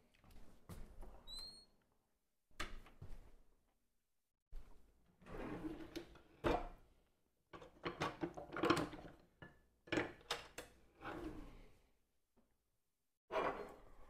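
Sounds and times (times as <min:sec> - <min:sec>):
drawer being opened and closed: 0:05.2 - 0:06.8.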